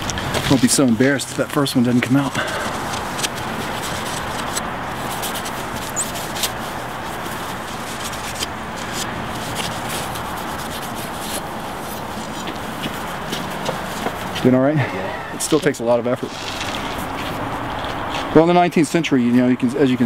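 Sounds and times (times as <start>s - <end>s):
cloth rubbing on glass: 2.8s - 14.4s.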